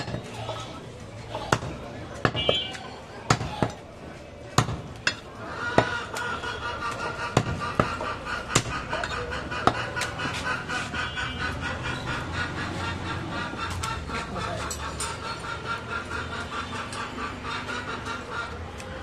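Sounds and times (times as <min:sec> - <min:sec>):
cleaver chopping meat on wood: 0:01.2 - 0:03.8, 0:04.5 - 0:06.1, 0:06.9 - 0:10.2.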